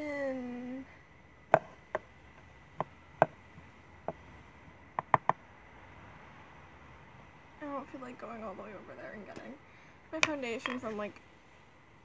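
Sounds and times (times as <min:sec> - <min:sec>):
plastic containers clicking and knocking: 0:05.0 - 0:05.4.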